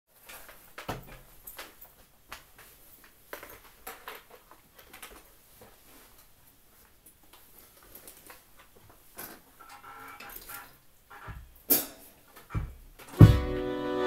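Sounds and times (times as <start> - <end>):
accordion handling knocks and clicks: 12.4 - 14.0
thump: 12.5 - 13.5.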